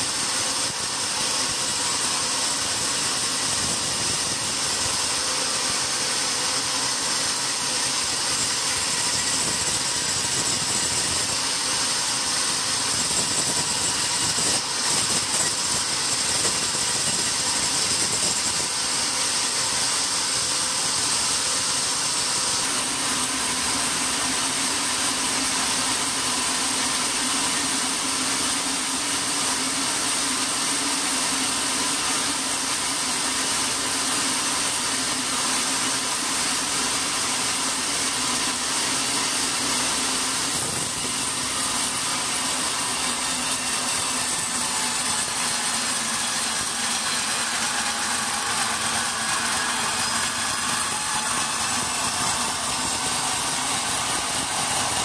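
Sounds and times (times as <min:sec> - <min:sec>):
band saw cutting log: 0:00.0 - 0:55.0.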